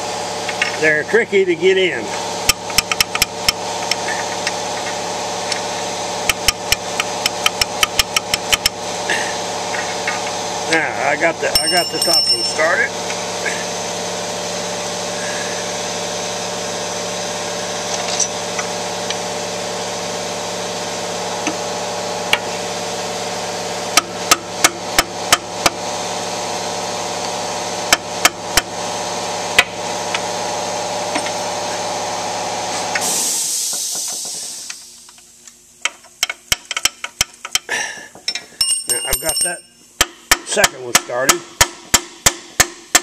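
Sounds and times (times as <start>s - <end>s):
steady hum: 0.0s - 43.0s
sharp metal taps: 6.3s - 8.8s, 38.3s - 43.0s.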